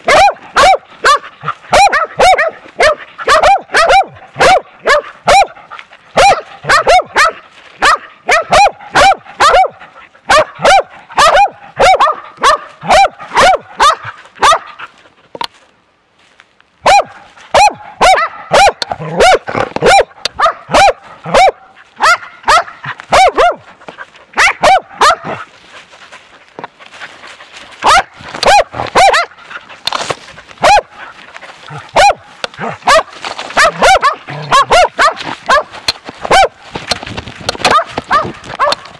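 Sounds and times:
dog barking: 0.0s - 14.9s, 16.8s - 23.7s, 24.4s - 25.5s, 27.8s - 29.4s, 30.6s - 31.1s, 31.7s - 36.6s, 37.6s - 38.9s.

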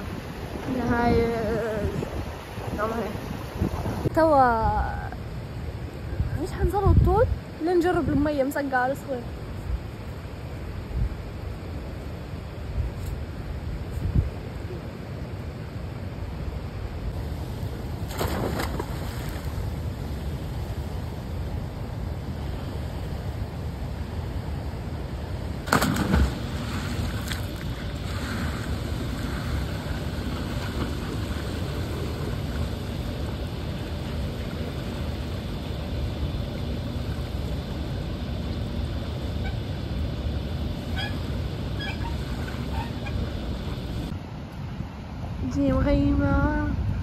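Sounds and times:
wind rumbling on microphone: 0.0s - 44.2s, 44.8s - 47.0s.

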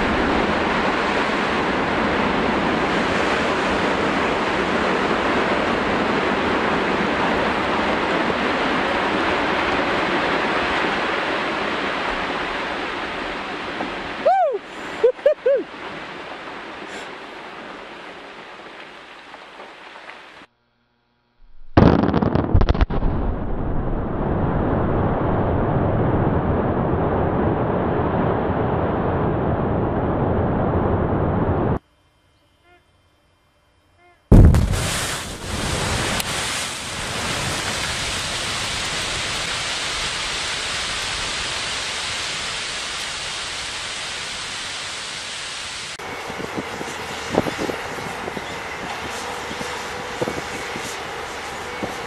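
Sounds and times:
sharp cracks: 21.5s - 23.9s
rock blast bang: 21.5s - 25.6s, 34.3s - 37.7s
rumble of falling rock: 21.5s - 27.0s, 34.3s - 39.5s.

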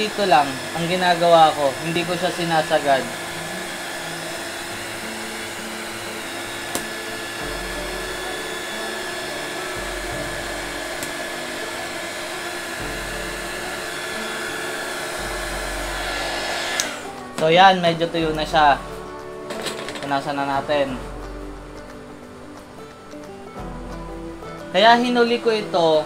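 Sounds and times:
heat gun blowing: 0.0s - 17.6s, 19.5s - 20.2s.

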